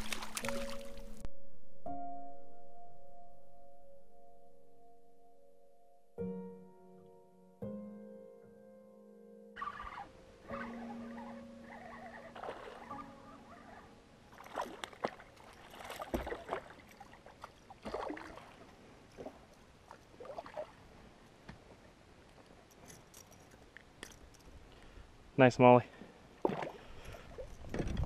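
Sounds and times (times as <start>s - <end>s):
fish splashing water: 0.0s - 1.2s, 11.7s - 13.0s, 14.4s - 20.8s.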